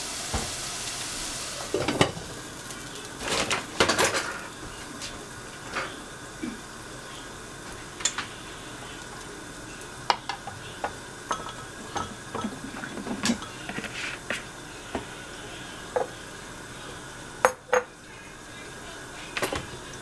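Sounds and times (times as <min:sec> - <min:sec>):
vegetables sizzling in a pan: 0:00.0 - 0:20.0.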